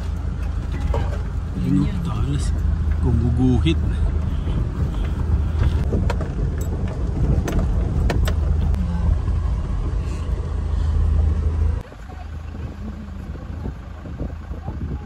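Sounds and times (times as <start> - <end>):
van engine and tyres rumbling: 0.0 - 15.0
knocks and rattles: 4.4 - 8.8.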